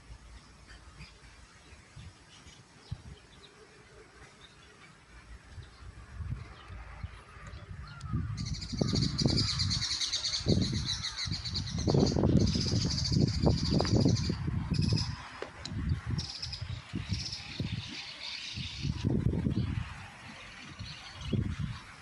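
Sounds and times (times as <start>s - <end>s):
high pulsing bird chatter: 0.0s - 22.0s
low rumble in gusts: 5.5s - 18.0s, 18.6s - 20.2s.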